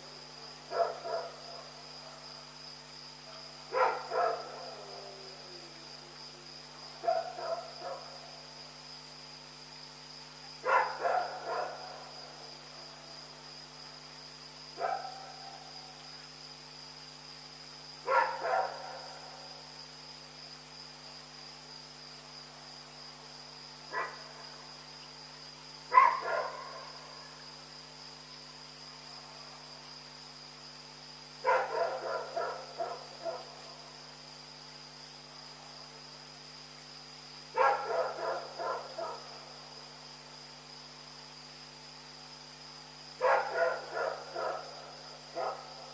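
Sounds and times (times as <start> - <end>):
crickets chirring: 0.0 - 45.9
dog barking: 0.7 - 1.4, 3.7 - 5.0, 7.0 - 8.1, 10.6 - 12.0, 14.8 - 15.4, 18.1 - 19.2, 23.9 - 24.3, 25.9 - 26.9, 31.4 - 33.5, 37.6 - 39.3, 43.2 - 45.7.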